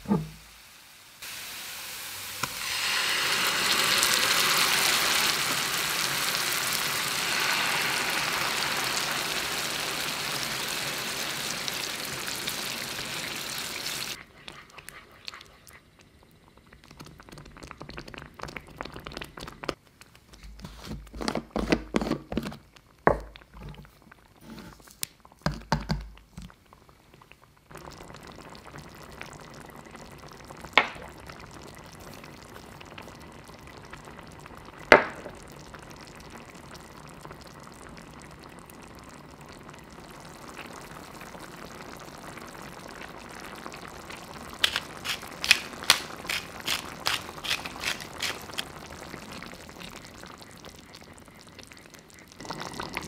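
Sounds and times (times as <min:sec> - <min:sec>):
sauce simmering in a pan: 0:00.1 - 0:20.2, 0:22.4 - 0:53.0
quick stirring taps: 0:44.6 - 0:48.8.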